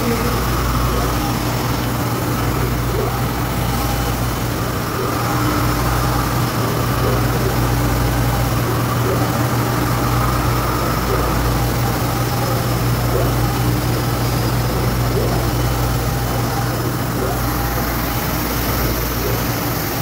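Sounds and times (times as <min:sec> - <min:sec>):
printer mechanical hum: 0:00.0 - 0:20.0.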